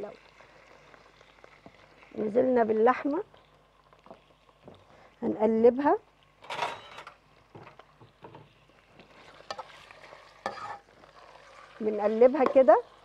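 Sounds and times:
meat sizzling in a pot: 0.0 - 13.0
spoon scraping a pot: 8.1 - 12.8.

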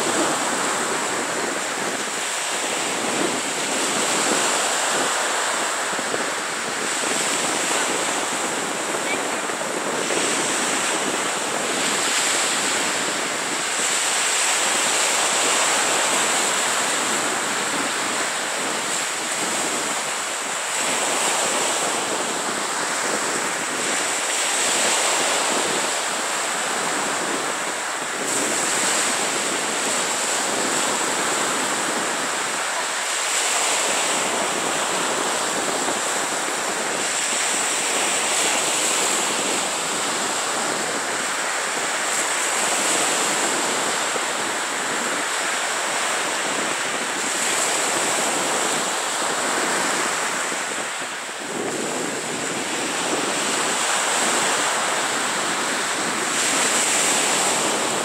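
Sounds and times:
surf washing up a beach: 0.0 - 58.0.

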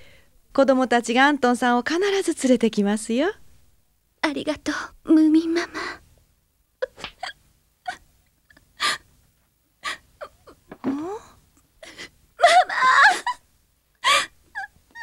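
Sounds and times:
woman sobbing and wailing: 6.8 - 9.1, 9.8 - 15.0.

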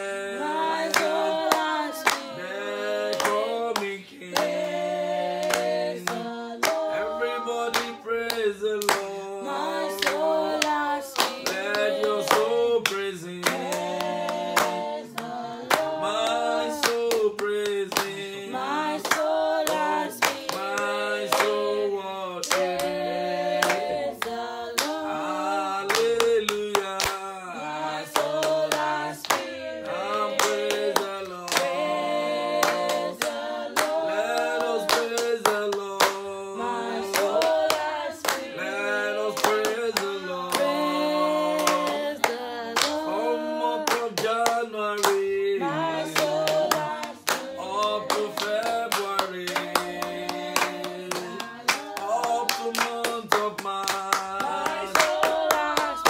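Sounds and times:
hands clapping: 0.7 - 56.0
man singing: 6.8 - 9.5, 42.9 - 49.8, 51.2 - 56.0.

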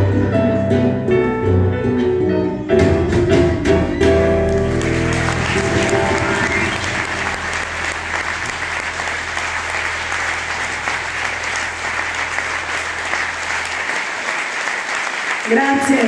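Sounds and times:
audience applause: 4.4 - 16.0.

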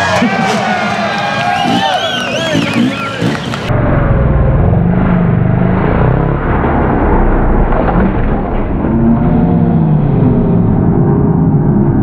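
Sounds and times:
dirt bike engine revving: 0.0 - 7.4.

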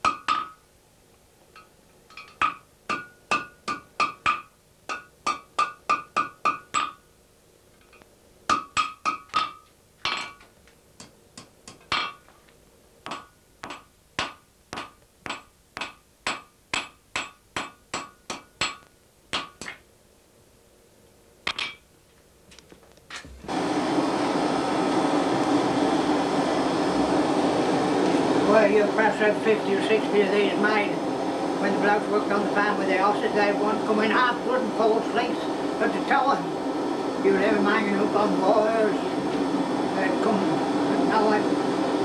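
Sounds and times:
rushing air of forge blower: 23.4 - 42.0.

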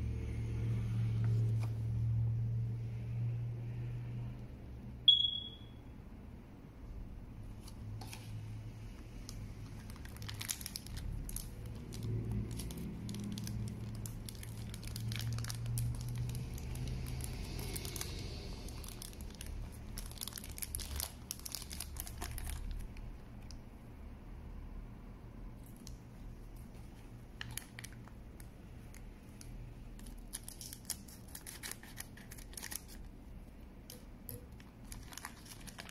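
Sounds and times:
low steady hum: 0.0 - 35.9
plastic bag crinkling: 9.2 - 23.5, 25.6 - 33.2, 33.9 - 35.9.

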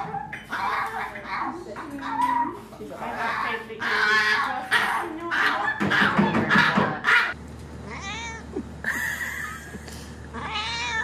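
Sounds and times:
cat meowing: 7.9 - 8.5, 10.4 - 11.0.

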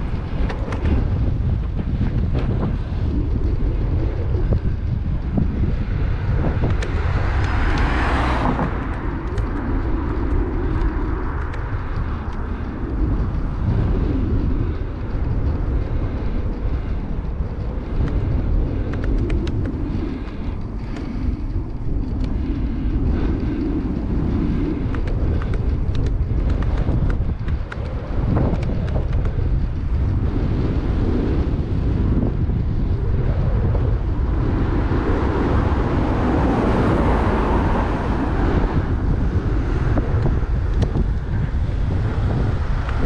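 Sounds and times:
wind buffeting microphone: 0.0 - 43.0
vehicle rushing past: 6.2 - 12.2, 34.0 - 40.0.

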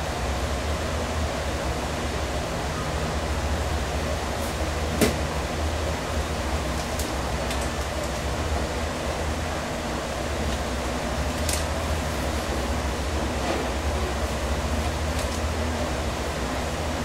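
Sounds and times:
kitchen machinery humming: 3.8 - 17.0.

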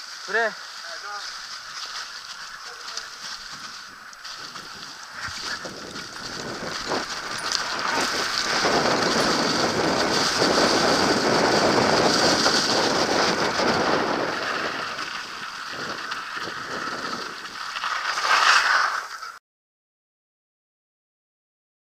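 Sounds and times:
bike tyres rattling over trail: 0.0 - 19.4
wind rush on microphone: 2.0 - 18.3.

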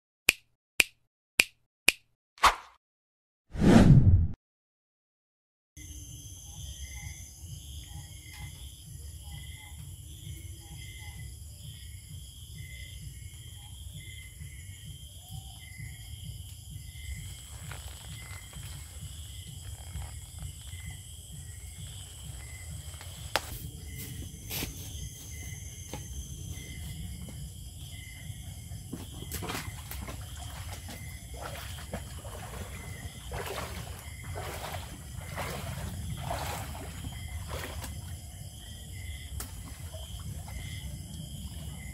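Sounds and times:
insect drone: 5.8 - 41.9
leaves and stalks rustling: 17.2 - 21.0, 21.7 - 25.6.

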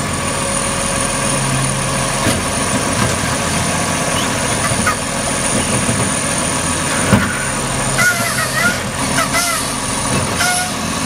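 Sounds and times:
garbage truck engine running: 0.0 - 11.0
trash cart knocking: 4.6 - 10.4.

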